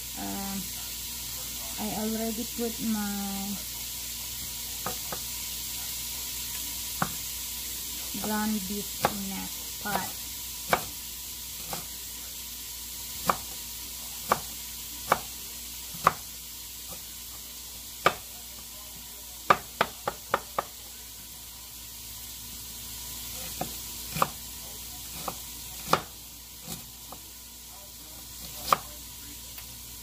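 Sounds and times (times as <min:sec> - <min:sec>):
knife tapping on cutting board: 0:07.0 - 0:07.2, 0:10.7 - 0:10.9, 0:13.2 - 0:13.5, 0:18.0 - 0:18.2, 0:19.5 - 0:20.7, 0:25.2 - 0:26.1.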